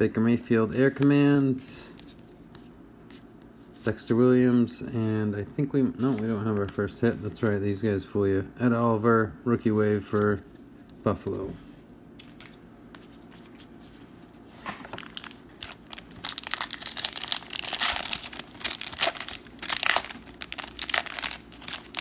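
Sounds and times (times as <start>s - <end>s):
foil wrapper crinkling and tearing: 14.9s - 22.0s.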